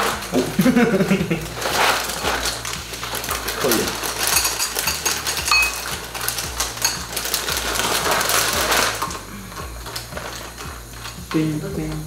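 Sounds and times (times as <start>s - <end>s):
cereal pouring into glass bowl: 0.0s - 11.5s
spoon clinking in bowl: 4.2s - 6.0s, 6.6s - 7.2s.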